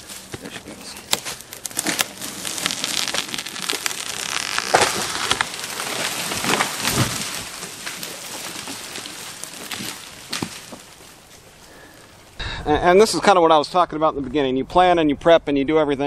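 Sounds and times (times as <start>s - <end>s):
heavy tree crash: 0.0s - 12.2s
tree branches crackling: 0.0s - 12.4s.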